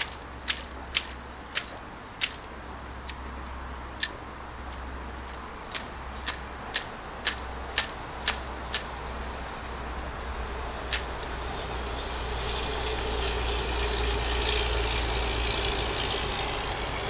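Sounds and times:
fishing line ticking: 0.0s - 3.3s, 4.0s - 9.3s.

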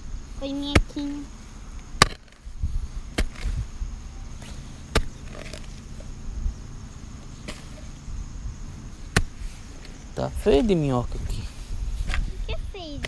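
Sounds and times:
low rumbling: 0.0s - 13.0s
digging tool striking earth: 0.6s - 1.2s, 2.0s - 2.5s, 3.1s - 3.7s, 4.3s - 6.1s, 7.4s - 8.0s, 8.9s - 10.9s.

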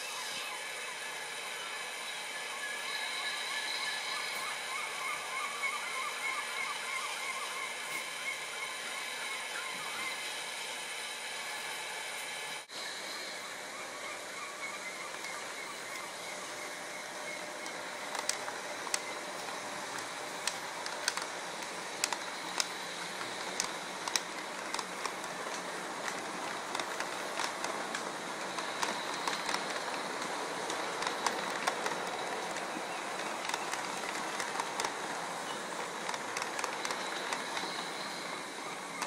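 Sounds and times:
model train rolling rumble: 7.8s - 39.0s
wheels clicking over rail joints: 15.0s - 39.0s.

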